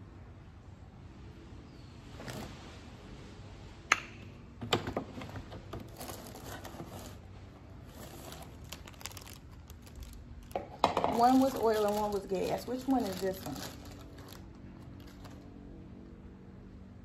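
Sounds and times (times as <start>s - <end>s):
plastic items clattering and rustling: 4.7s - 15.5s.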